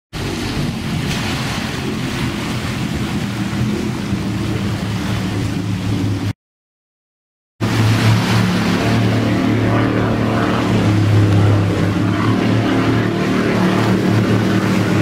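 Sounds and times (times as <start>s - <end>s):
powerboat engines running flat out: 0.2s - 6.3s, 7.6s - 15.0s.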